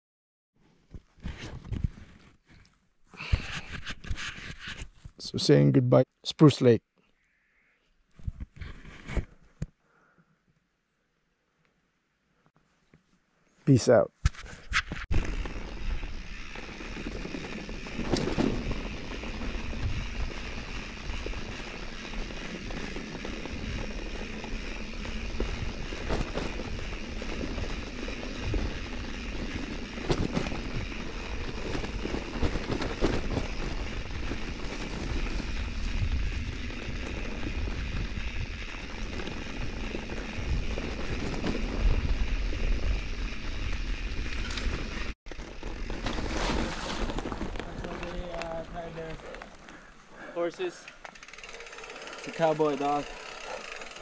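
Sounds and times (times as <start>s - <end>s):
bike knocking and rattling: 14.8s - 54.0s
tyres rolling over dirt: 15.1s - 49.7s.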